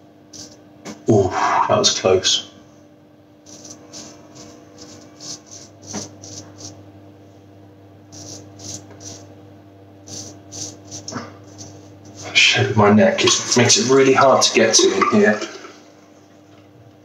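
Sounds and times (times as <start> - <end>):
faint steady hum: 0.0 - 17.0
razor scraping stubble: 3.5 - 6.8, 8.2 - 9.3, 10.0 - 12.4.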